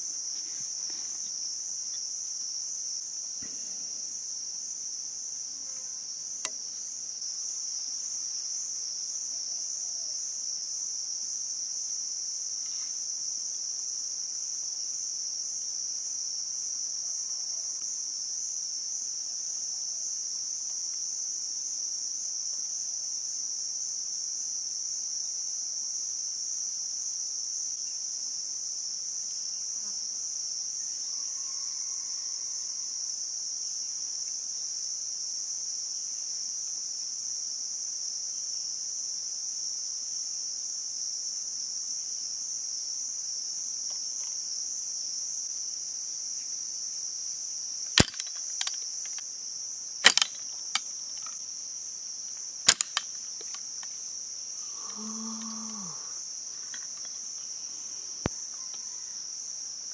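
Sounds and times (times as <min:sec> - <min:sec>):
insects droning: 0:00.0 - 0:59.9
bamboo clicking and snapping: 0:48.0 - 0:49.2, 0:50.0 - 0:51.4, 0:52.7 - 0:53.9.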